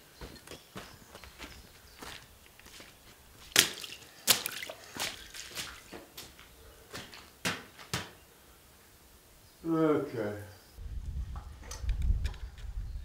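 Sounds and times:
footsteps on gritty ground: 0.0 - 8.2.

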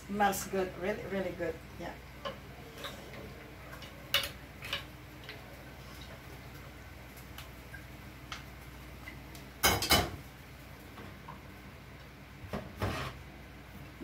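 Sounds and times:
cookware clattering on stove: 9.6 - 10.2.

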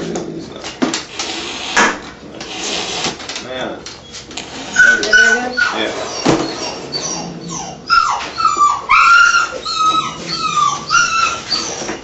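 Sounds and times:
cat yowling and growling: 4.7 - 11.9.

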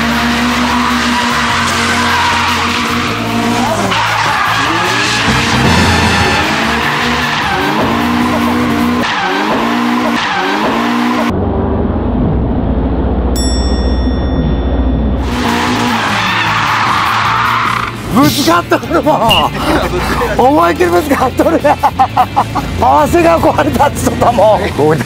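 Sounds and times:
engine revving: 0.0 - 13.4, 14.8 - 24.5
tyre screech: 0.2 - 11.2, 15.2 - 18.2
deep low rumble: 11.3 - 15.3
bright ringing tone: 13.4 - 15.2.

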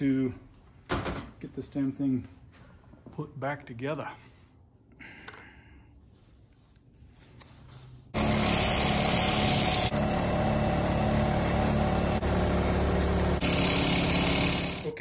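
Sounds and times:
bench grinder motor hum: 8.2 - 15.0.

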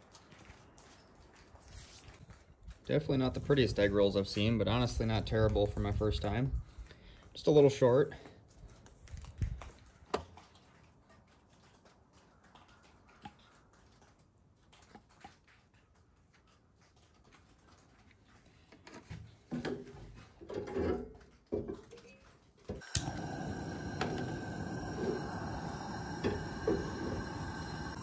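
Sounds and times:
gas burner hissing: 22.8 - 28.0.

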